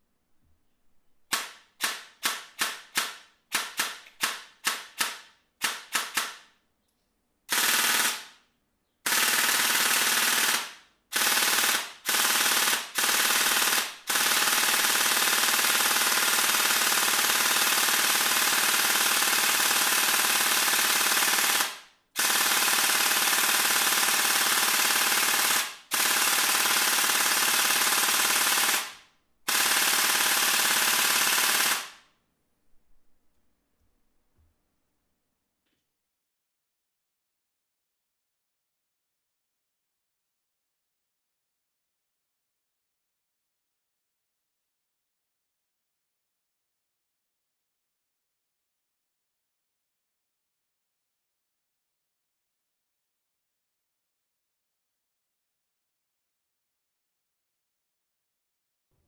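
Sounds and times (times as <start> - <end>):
airsoft gearbox firing single shots: 1.3 - 6.5
airsoft gearbox full-auto bursts: 1.3 - 6.5, 7.5 - 8.4, 9.0 - 32.1.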